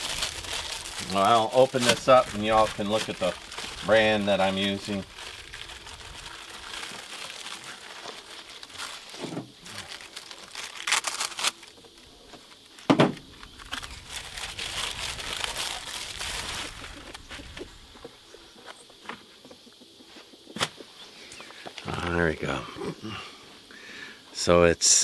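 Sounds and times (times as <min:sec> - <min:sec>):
cardboard and foam rustling: 0:00.0 - 0:18.0.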